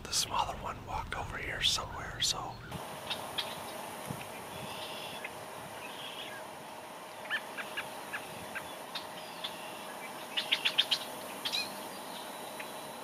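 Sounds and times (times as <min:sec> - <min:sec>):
small birds chirping: 0:01.4 - 0:06.4, 0:07.1 - 0:13.0.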